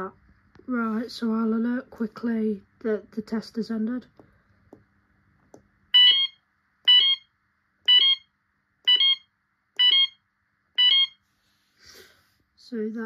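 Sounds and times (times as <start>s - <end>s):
fire alarm two-tone bursts: 5.9s - 10.2s, 10.8s - 11.2s.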